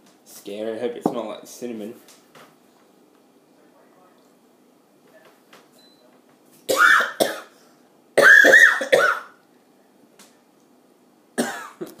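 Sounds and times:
person coughing hard: 0:06.7 - 0:07.5, 0:08.2 - 0:09.4, 0:11.4 - 0:11.9.

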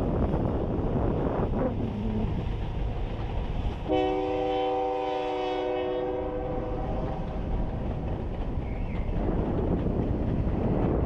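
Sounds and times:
passenger train running: 0:00.0 - 0:11.0
wind rumble: 0:00.0 - 0:11.0
locomotive air horn blast: 0:03.9 - 0:07.0.

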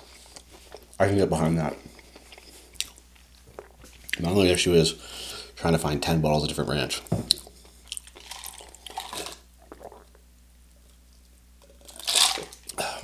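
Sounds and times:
soft chewing: 0:00.0 - 0:01.0, 0:01.7 - 0:04.3, 0:07.3 - 0:10.2.

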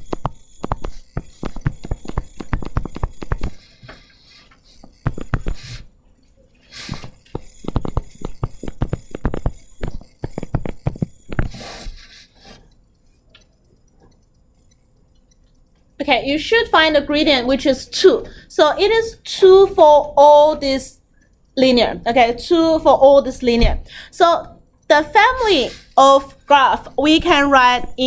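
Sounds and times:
stylus tapping on touchscreen: 0:00.0 - 0:04.0, 0:04.8 - 0:05.8, 0:06.9 - 0:11.6.

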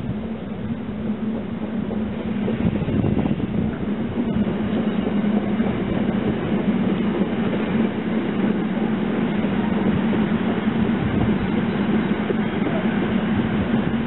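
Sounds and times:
electric train rumbling: 0:00.0 - 0:14.0.

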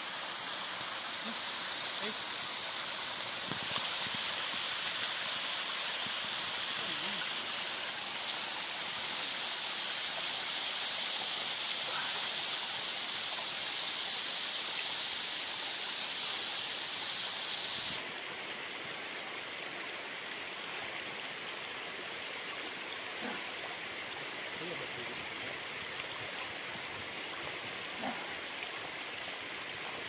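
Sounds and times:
stream and waterfall rushing: 0:00.0 - 0:30.0.

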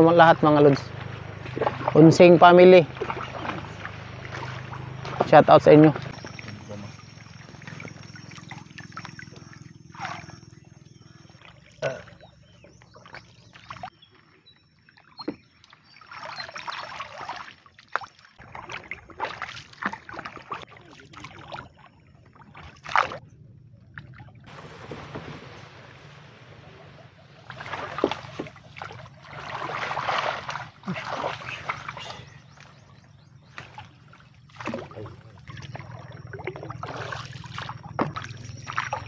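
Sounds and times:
boat brushing through grass: 0:00.0 - 0:10.6, 0:24.5 - 0:32.2, 0:36.7 - 0:39.0
paddle strokes splashing: 0:00.0 - 0:14.0, 0:15.3 - 0:23.2, 0:24.0 - 0:39.0.

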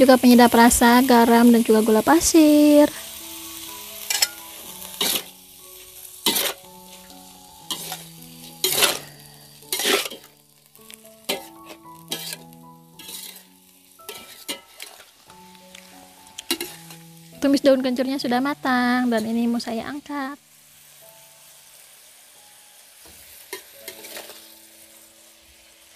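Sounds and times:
food sizzling in wok: 0:00.0 - 0:25.9
metal spatula scraping wok: 0:04.0 - 0:10.3, 0:11.2 - 0:15.2, 0:16.4 - 0:17.1, 0:23.3 - 0:24.6.

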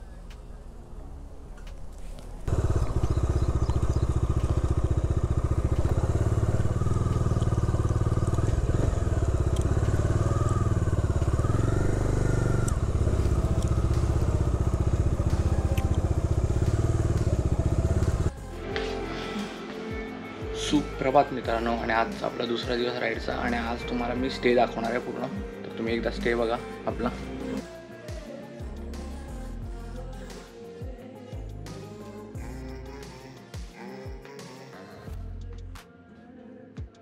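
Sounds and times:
motorcycle engine running: 0:00.0 - 0:18.9.

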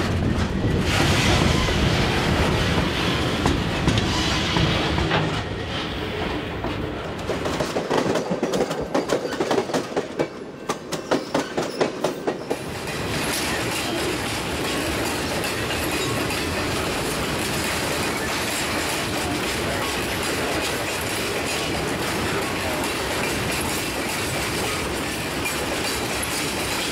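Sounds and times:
wheels clacking over rail joints: 0:00.0 - 0:26.9
steel wheels rolling on track: 0:11.1 - 0:26.9.

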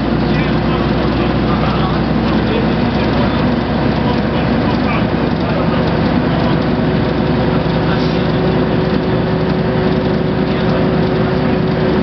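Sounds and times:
bus diesel engine cruising: 0:00.0 - 0:12.0
steady whine: 0:00.0 - 0:12.0.

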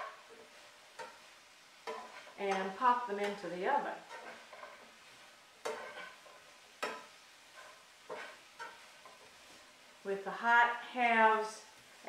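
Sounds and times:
fork stirring in a pan: 0:00.0 - 0:10.0
faint sizzle: 0:00.0 - 0:12.0
fork clinking against pan: 0:06.8 - 0:08.8.

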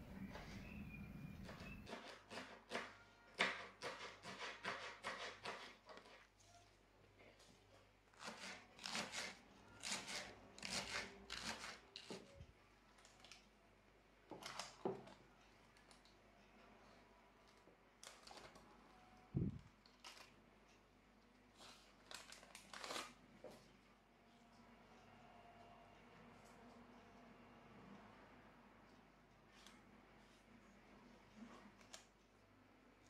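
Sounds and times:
knife chopping on plastic board: 0:01.4 - 0:05.8.

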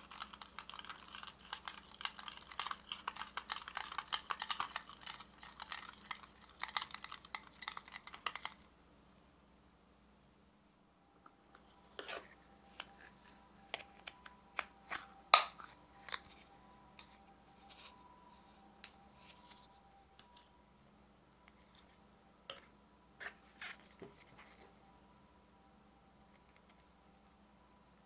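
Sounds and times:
plastic cups clicking and tapping: 0:00.0 - 0:08.6.

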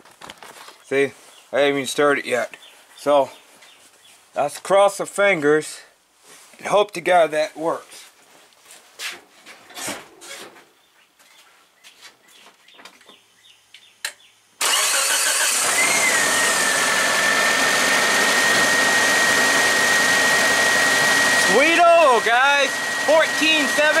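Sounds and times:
car engine starting and running: 0:14.6 - 0:24.0.

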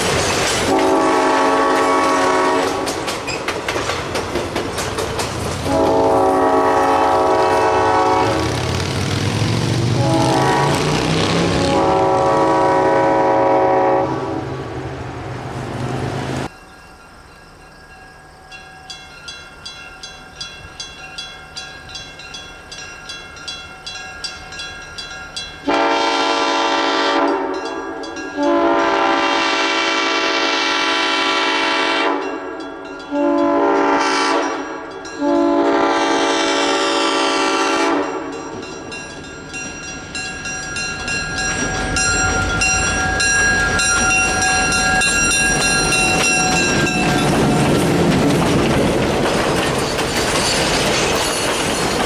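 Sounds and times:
diesel locomotive horn: 0:00.7 - 0:03.0, 0:05.6 - 0:15.1, 0:25.6 - 0:27.8, 0:28.4 - 0:38.4
crossing bell dinging: 0:16.4 - 0:29.4, 0:32.1 - 0:36.3, 0:37.6 - 0:52.0.

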